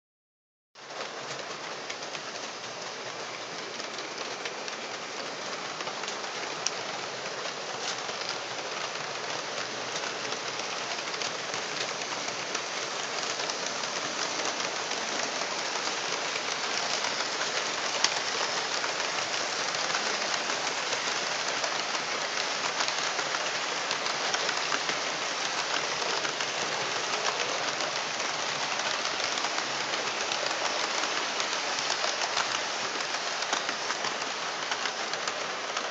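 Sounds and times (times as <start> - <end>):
model trains rattling on track: 0.8 - 35.9.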